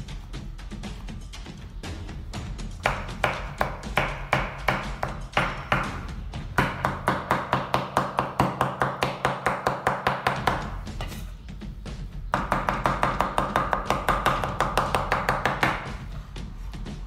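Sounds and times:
knife chopping on wooden board: 0:02.8 - 0:11.3, 0:12.3 - 0:16.0.

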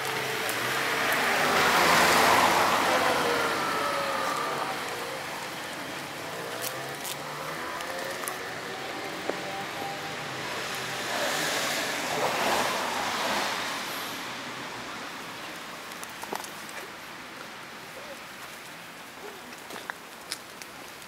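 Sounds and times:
car passing: 0:00.0 - 0:15.4.

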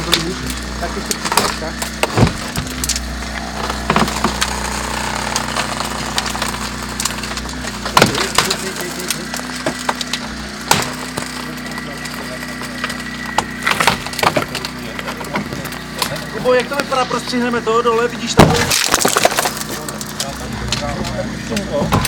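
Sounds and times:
steady mechanical hum: 0:00.0 - 0:22.0
cracks and knocks on car body: 0:01.2 - 0:03.0.

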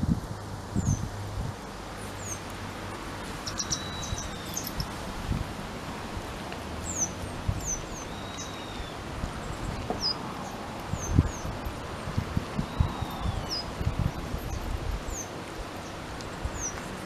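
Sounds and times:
outdoor hiss: 0:00.0 - 0:17.0
small birds chirping: 0:00.7 - 0:05.1, 0:06.5 - 0:17.0
bird whistle: 0:03.5 - 0:04.8, 0:07.0 - 0:09.0, 0:12.6 - 0:13.7.

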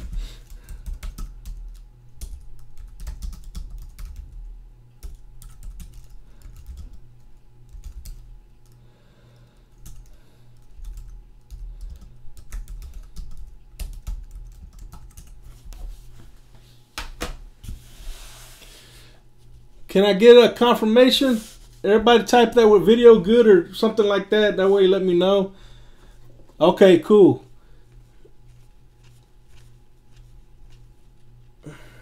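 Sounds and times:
computer keyboard typing: 0:00.0 - 0:04.4, 0:05.0 - 0:08.8, 0:09.7 - 0:15.4.

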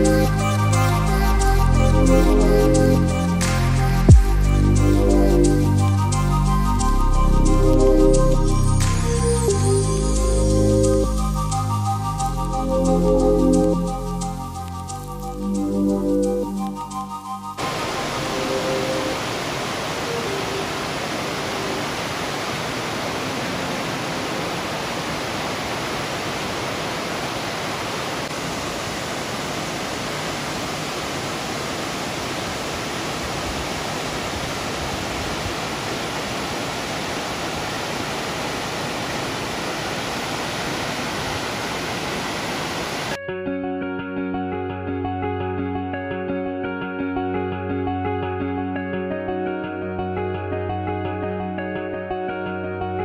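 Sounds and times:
waterfall rushing: 0:00.0 - 0:15.8, 0:16.8 - 0:43.2
music: 0:00.0 - 0:19.2, 0:43.2 - 0:53.0.

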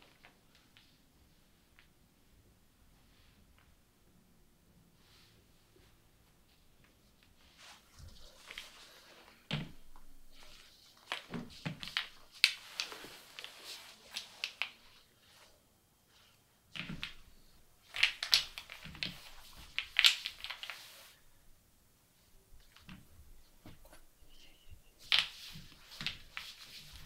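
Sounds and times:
wooden blocks clicking and knocking: 0:17.9 - 0:20.8.

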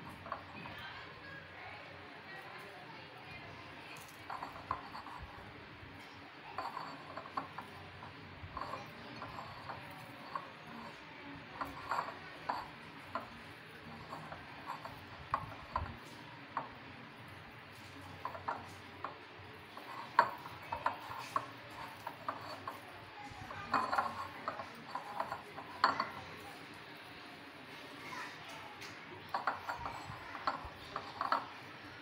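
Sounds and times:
glass bowl clinking: 0:00.1 - 0:00.9, 0:04.0 - 0:05.4, 0:06.6 - 0:16.8, 0:17.7 - 0:26.5, 0:29.2 - 0:31.6.

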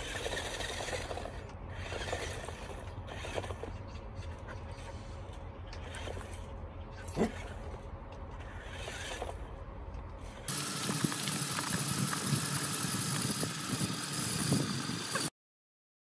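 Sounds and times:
toy car motor whine: 0:00.0 - 0:03.8, 0:05.7 - 0:06.5, 0:08.4 - 0:09.5, 0:10.3 - 0:15.3
low outdoor rumble: 0:00.0 - 0:15.2.

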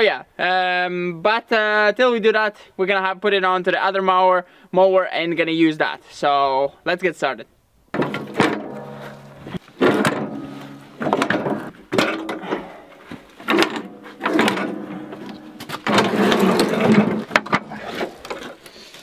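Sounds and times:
metal clanks ringing: 0:08.0 - 0:12.4
metal scraping clatter: 0:08.0 - 0:12.5, 0:13.4 - 0:18.5.

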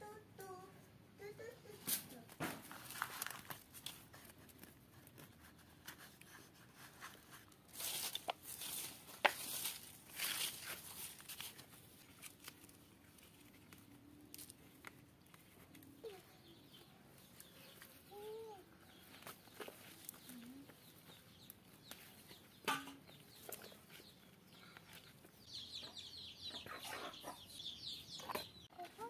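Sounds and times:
hands rustling soil and leaves: 0:01.8 - 0:25.5
hen clucking: 0:25.6 - 0:28.6.

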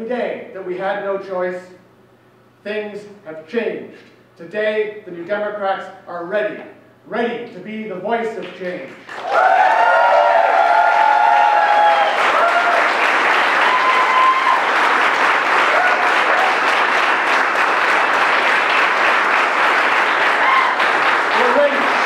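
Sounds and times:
crowd applauding: 0:09.0 - 0:22.0
crowd cheering: 0:09.1 - 0:22.0.

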